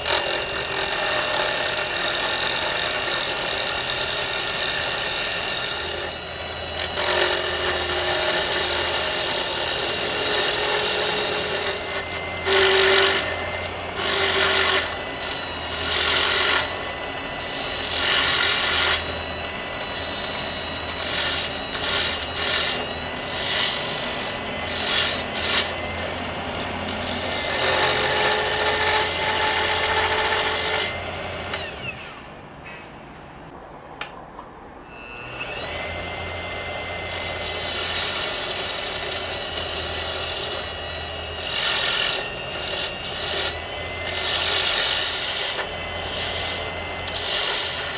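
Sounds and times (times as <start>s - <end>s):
lathe motor hum: 2.2s - 32.2s, 35.3s - 47.9s
turning tool scraping wood: 4.4s - 31.6s, 37.6s - 47.9s.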